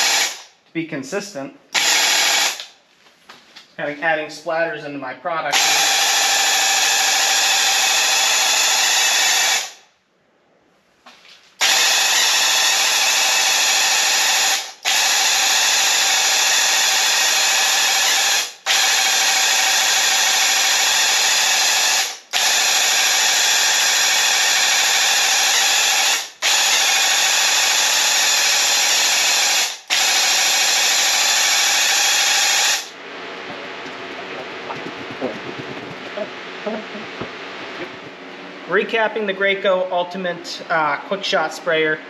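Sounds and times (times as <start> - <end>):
paint sprayer pump running: 33.5 - 36.3.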